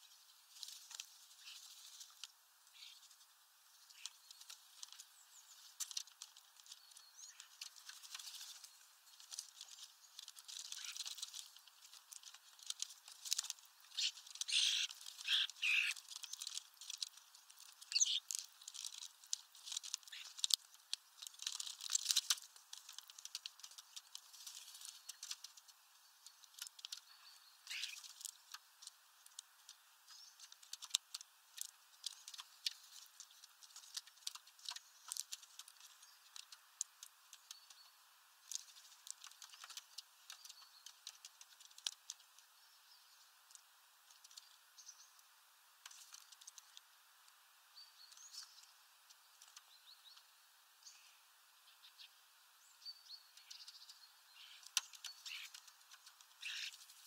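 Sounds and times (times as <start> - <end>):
faint patter of clicks and taps: 0.5 - 42.5, 43.4 - 47.4, 48.0 - 50.3, 53.4 - 57.0
high bird chirps: 13.9 - 16.0, 17.9 - 18.3, 56.4 - 56.8.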